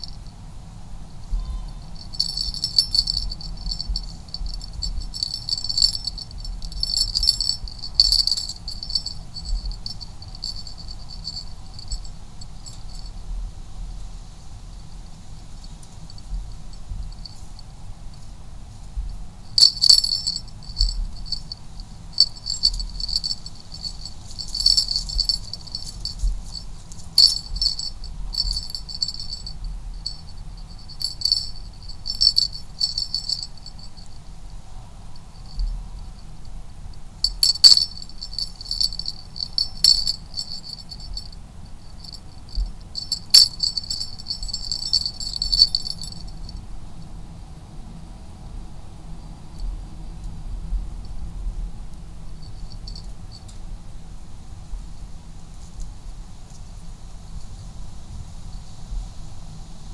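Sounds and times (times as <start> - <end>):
cat toy rattling: 1.6 - 13.1, 19.6 - 34.2, 37.2 - 46.5.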